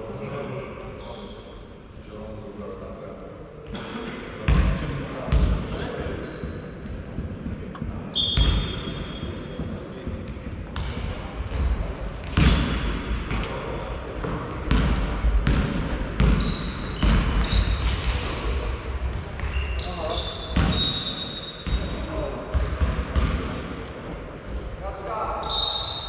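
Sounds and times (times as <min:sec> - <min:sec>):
sneakers squeaking on floor: 0:05.3 - 0:13.0, 0:14.2 - 0:23.4, 0:25.4 - 0:26.0.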